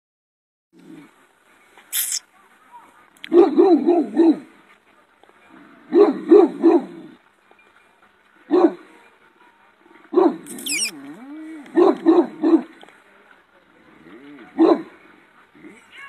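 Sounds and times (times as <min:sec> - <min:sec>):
large dog barking: 0:03.3 - 0:04.5, 0:05.8 - 0:07.2, 0:08.5 - 0:09.0, 0:10.0 - 0:10.7, 0:11.5 - 0:12.8, 0:14.3 - 0:15.0.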